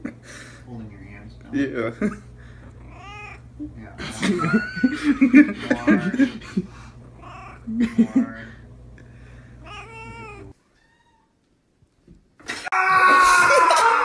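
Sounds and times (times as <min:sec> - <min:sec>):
cat meowing: 0:02.8 - 0:03.4, 0:07.2 - 0:07.7, 0:09.6 - 0:11.4
cat yowling: 0:02.8 - 0:03.5, 0:07.2 - 0:07.7, 0:09.6 - 0:11.3.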